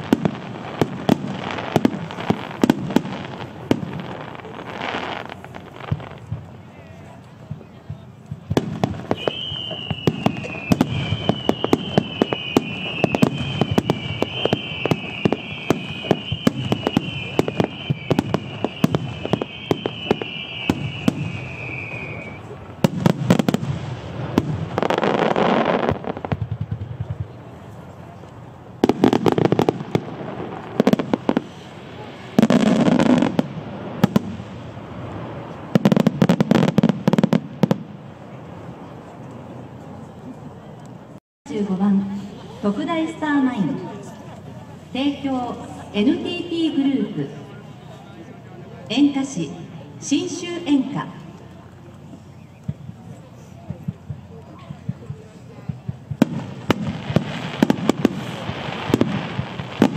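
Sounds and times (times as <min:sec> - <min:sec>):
firework crackling: 0:00.0 - 0:39.2, 0:42.2 - 0:59.9
fireworks bursting: 0:00.0 - 0:39.5, 0:48.9 - 0:59.9
firework whistle: 0:08.6 - 0:26.3, 0:28.8 - 0:38.0.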